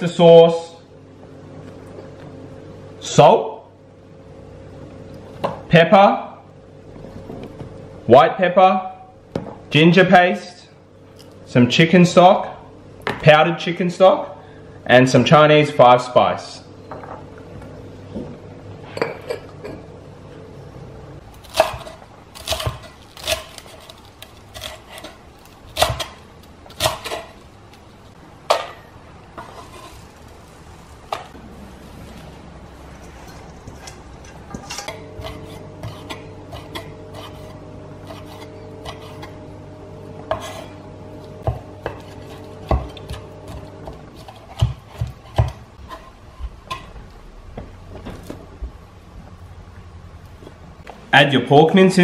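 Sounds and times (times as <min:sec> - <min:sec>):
steady low hum: 0:00.0 - 0:52.0
knife on wooden chopping board: 0:33.7 - 0:39.4, 0:40.3 - 0:40.8.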